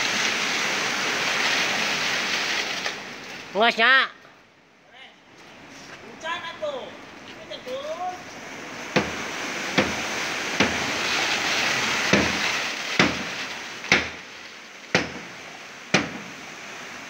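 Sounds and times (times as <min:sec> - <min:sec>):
concrete rushing through hose: 0:00.0 - 0:03.9, 0:07.4 - 0:17.0
sharp knocks: 0:08.9 - 0:09.2, 0:09.8 - 0:10.0, 0:10.6 - 0:10.9, 0:12.1 - 0:14.2, 0:14.9 - 0:15.3, 0:15.9 - 0:16.3.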